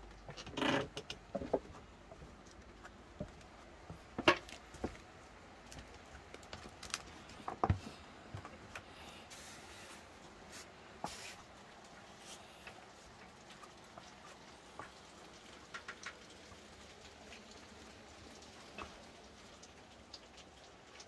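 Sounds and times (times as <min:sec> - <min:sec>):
footsteps in a shed: 0:00.0 - 0:15.4.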